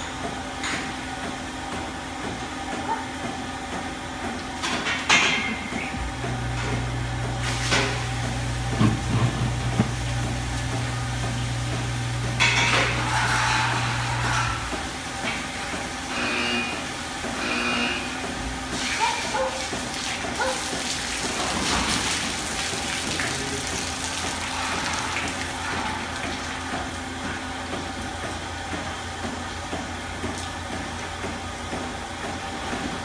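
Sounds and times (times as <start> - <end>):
machinery hum: 5.4 - 19.5.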